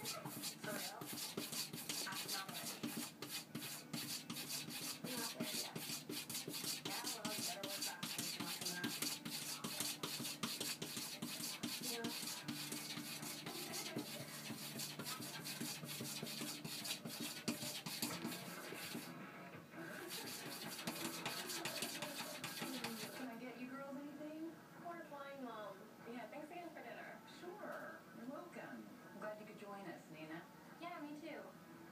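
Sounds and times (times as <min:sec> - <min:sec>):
cat scraping at wooden door: 0:00.0 - 0:19.1, 0:19.9 - 0:23.2.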